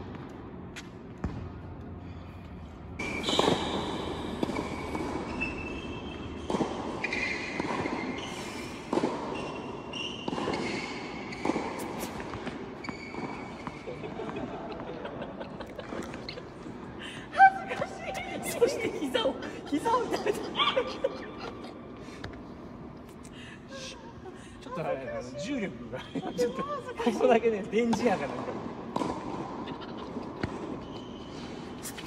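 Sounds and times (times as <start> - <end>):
tennis racket hitting balls: 3.0 - 14.1, 28.9 - 30.9.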